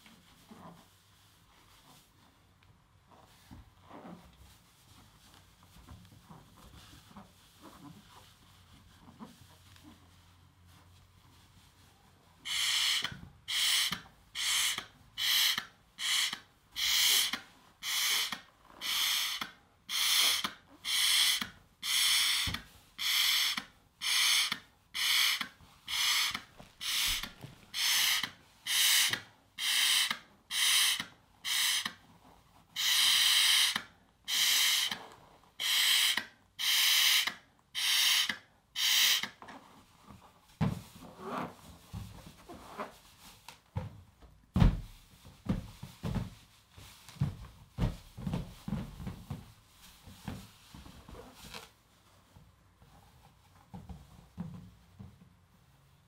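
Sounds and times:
breaths blown into a balloon: 12.5 - 22.4, 23.0 - 31.9, 32.8 - 35.0, 35.6 - 39.4.

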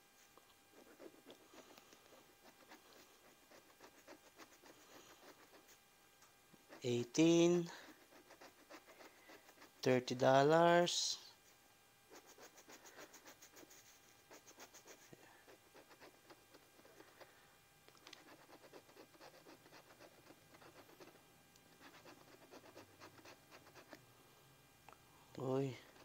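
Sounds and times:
scratching lottery ticket coating: 7.6 - 9.8, 12.2 - 17.2, 18.0 - 24.0, 25.6 - 26.0.

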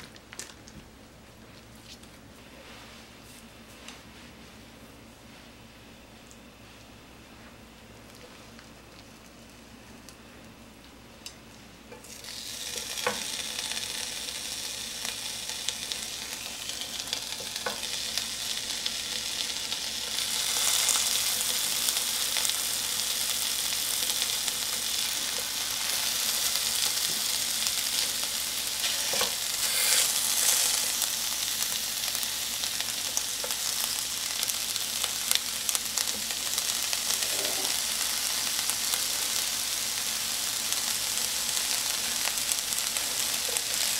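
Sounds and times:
root strips sizzling in a pan: 11.2 - 43.9.

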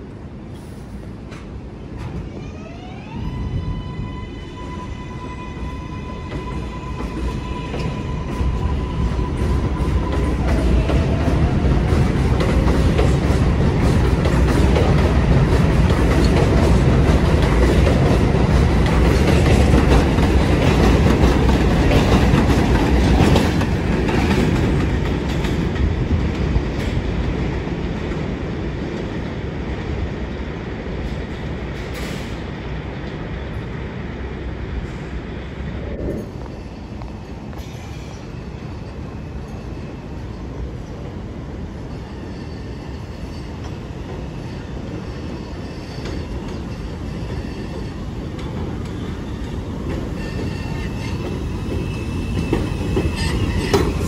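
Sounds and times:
subway train wheels clattering: 0.0 - 54.0
train high whine: 0.0 - 54.0
train wheel squeal: 2.1 - 12.1, 35.9 - 54.0.

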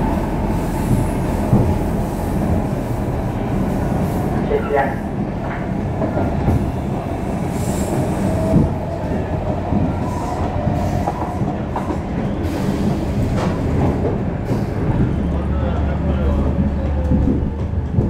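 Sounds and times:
train wheel and track rumble: 0.0 - 18.0.

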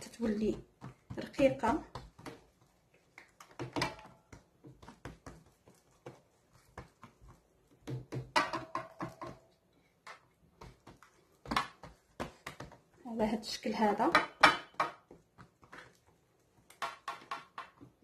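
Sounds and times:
hands slapping dough: 0.0 - 18.0.

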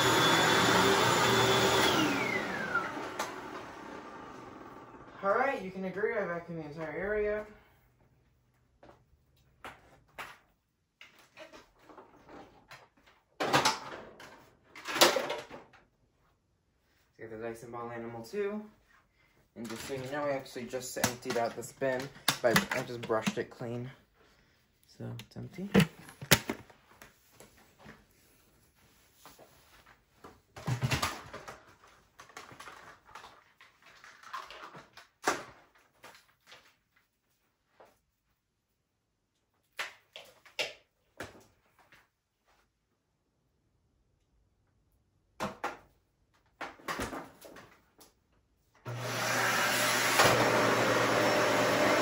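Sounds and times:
vacuum cleaner scraping clunks: 48.9 - 52.0.

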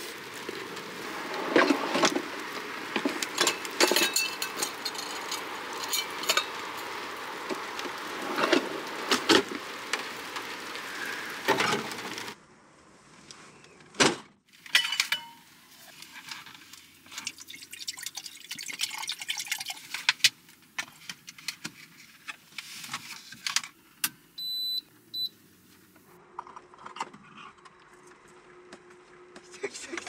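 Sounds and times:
bottle clink: 14.8 - 15.5
water pouring and glugging: 15.1 - 20.3
electronic beeps: 24.4 - 25.3.

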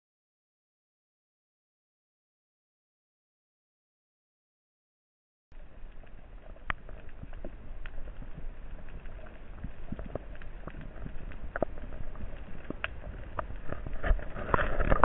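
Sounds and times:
underwater rumble of moving water: 5.5 - 15.0
sharp clicks and crackles: 5.6 - 15.0.

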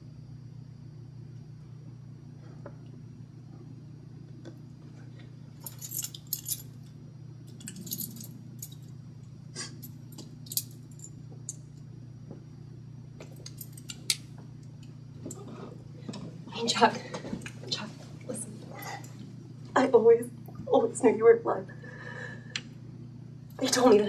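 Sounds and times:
low room hum: 0.0 - 24.0
keys jingling: 5.6 - 6.8, 7.5 - 8.9, 9.8 - 11.6, 13.4 - 14.1.

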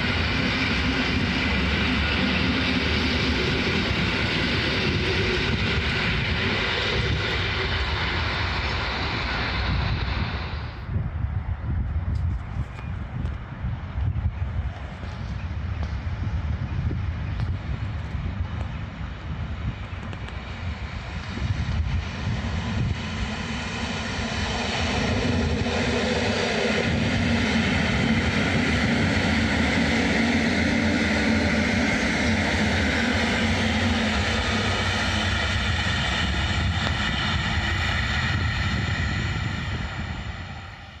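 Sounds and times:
electric train passing: 0.0 - 11.8, 13.7 - 41.0.

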